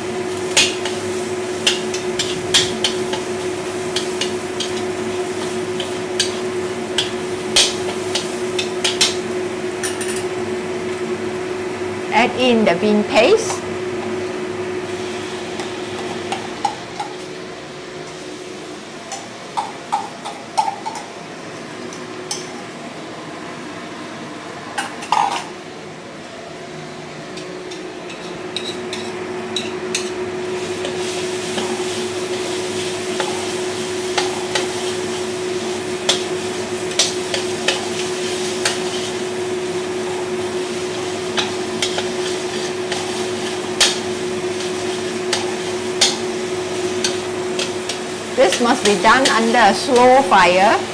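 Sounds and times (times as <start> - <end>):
steady hum: 0.0 - 50.9.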